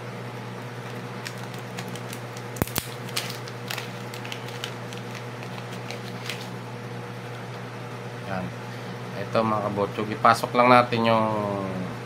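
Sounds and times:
plastic packet crinkling: 0.8 - 6.6.

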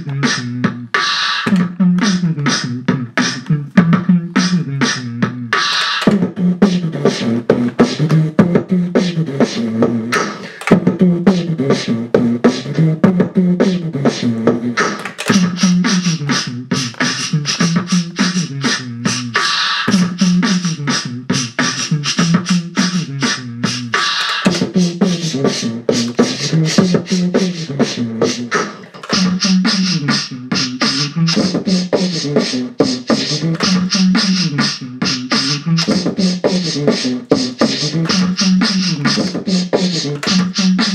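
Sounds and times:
beatboxing drum sounds: 0.0 - 40.9
low vocal bass line: 10.8 - 28.5.

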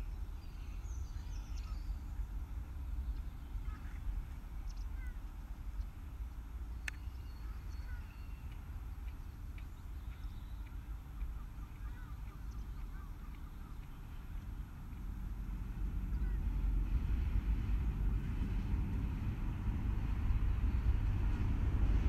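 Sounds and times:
small birds chirping: 0.0 - 15.2, 16.0 - 16.6
wind rumble on microphone: 0.0 - 22.0.

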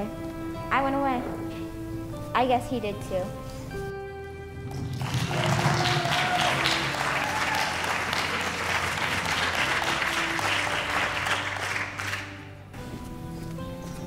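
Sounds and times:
quiet background music: 0.0 - 14.0
audience applauding: 4.7 - 12.4.

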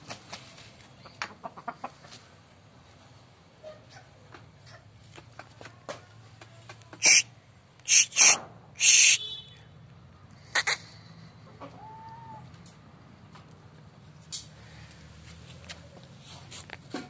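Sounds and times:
rooster calling: 7.0 - 7.2, 7.9 - 9.4, 10.5 - 10.9, 11.5 - 12.5.

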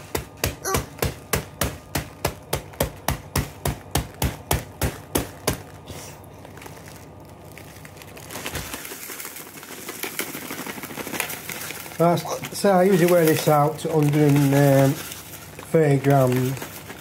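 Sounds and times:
crackling rustle: 3.6 - 17.0.

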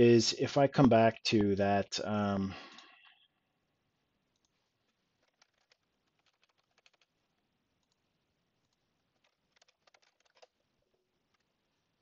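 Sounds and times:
faint computer clicks: 5.2 - 7.1.

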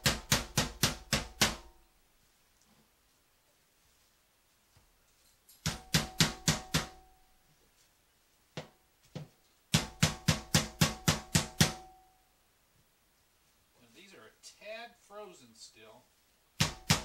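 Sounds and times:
meat mallet pounding: 0.0 - 1.7, 5.7 - 7.0, 9.7 - 11.9, 16.6 - 17.0.

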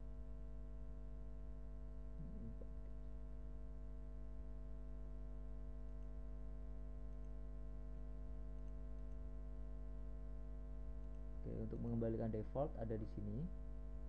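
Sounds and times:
electrical hum: 0.0 - 14.0
faint ticks: 5.8 - 6.2, 7.0 - 7.6, 8.4 - 9.4, 11.0 - 11.3.

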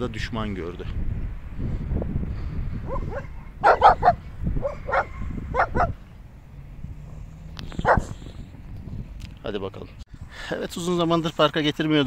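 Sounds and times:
dog barking: 2.8 - 6.0, 7.8 - 8.2.

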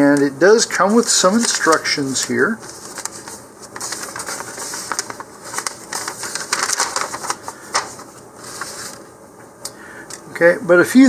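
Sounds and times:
paper rustling and crackling: 0.7 - 9.1.

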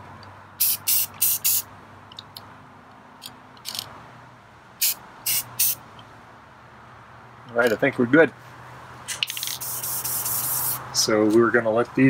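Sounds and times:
aerosol can spraying: 0.6 - 1.7, 4.8 - 5.8, 9.1 - 10.8.

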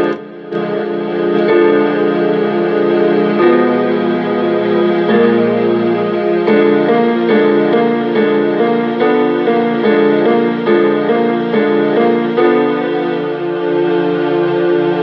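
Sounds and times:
keyboard chords: 0.0 - 15.0.

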